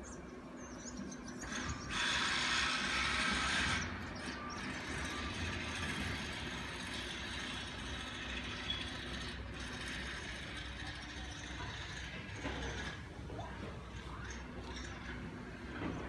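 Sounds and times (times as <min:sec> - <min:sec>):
low rumble of city traffic: 0:00.0 - 0:16.0
loud hiss: 0:01.5 - 0:04.0.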